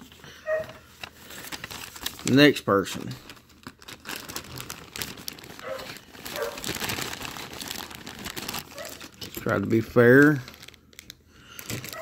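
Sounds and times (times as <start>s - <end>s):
packaging crinkling: 0.0s - 12.0s.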